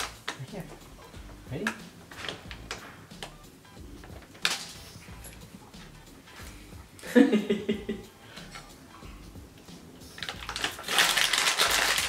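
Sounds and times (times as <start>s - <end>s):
foil pouch crinkling: 10.1s - 12.0s.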